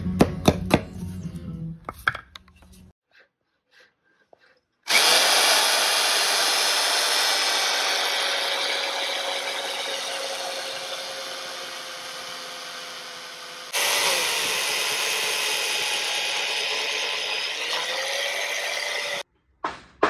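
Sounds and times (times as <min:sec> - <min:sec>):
chain mortiser motor whining: 0:04.9 - 0:19.2.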